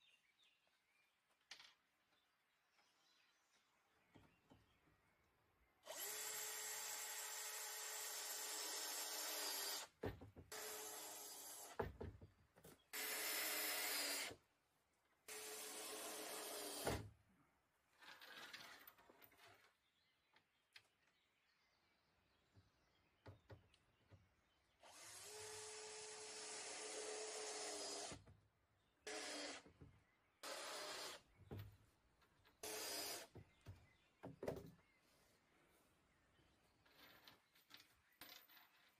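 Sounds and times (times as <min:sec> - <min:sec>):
cordless drill running: 0:05.9 - 0:09.9, 0:24.8 - 0:28.2, 0:29.1 - 0:29.6, 0:32.6 - 0:33.3.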